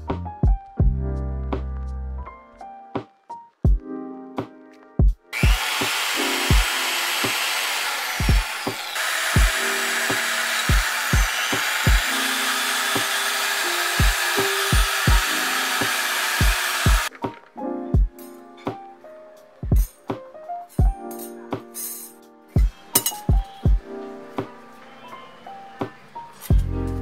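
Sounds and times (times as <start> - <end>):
lofi beat with kick drum: 0.0 - 1.8, 3.7 - 5.6, 8.2 - 8.7, 14.0 - 15.3, 18.0 - 18.3, 19.6 - 21.7, 22.6 - 24.5, 26.5 - 27.0
wire brush grinding rust: 5.4 - 17.1.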